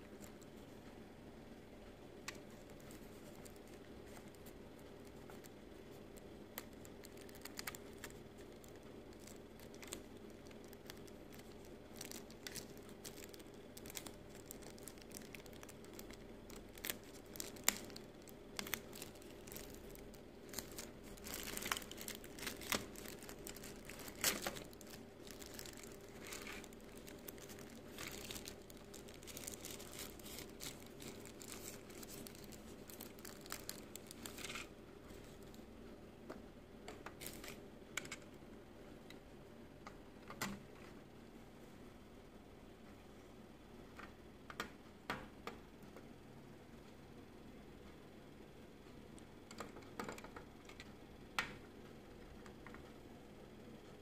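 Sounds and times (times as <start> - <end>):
faint steady hum: 0.0 - 54.0
plastic and tissue paper crinkling: 2.3 - 35.7, 37.1 - 37.6.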